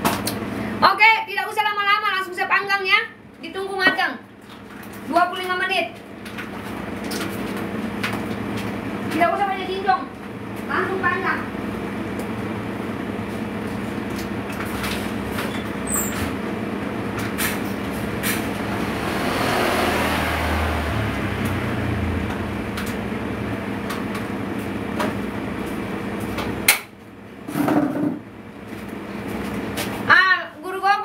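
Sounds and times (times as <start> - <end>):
machine humming: 7.0 - 28.6.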